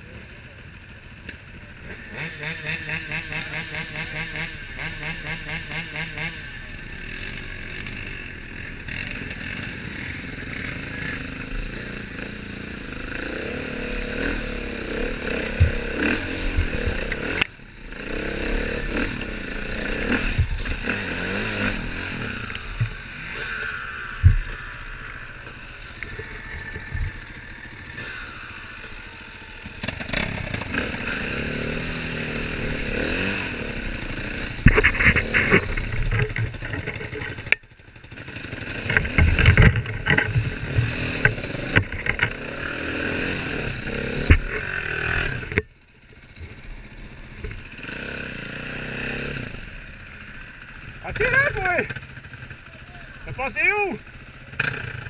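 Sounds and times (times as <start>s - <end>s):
engines revving and idling: 0.0s - 55.0s
sharp knocks and clatter: 34.4s - 37.7s, 38.7s - 42.5s.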